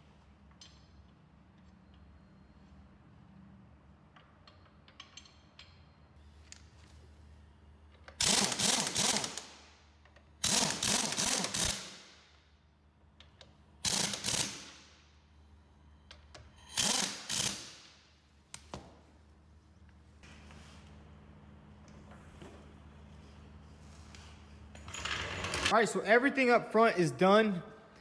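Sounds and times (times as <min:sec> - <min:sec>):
pneumatic impact wrench hammering: 0:08.1 - 0:09.6, 0:10.4 - 0:12.2, 0:13.8 - 0:14.9, 0:16.6 - 0:17.9.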